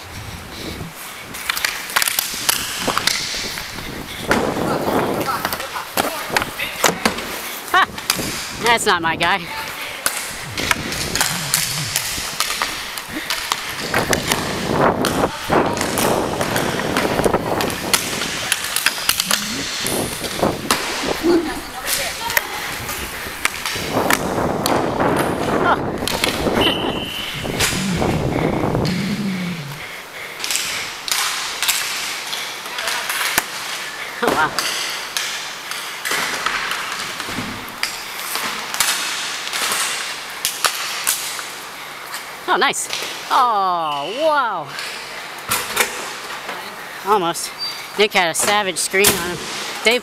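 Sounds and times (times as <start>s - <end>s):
skate wheels rolling and scraping: 0.0s - 8.6s, 9.5s - 43.2s
sticks and puck clicking: 1.4s - 3.7s, 10.0s - 21.0s, 30.4s - 33.8s
sticks clacking on puck: 1.4s - 3.7s.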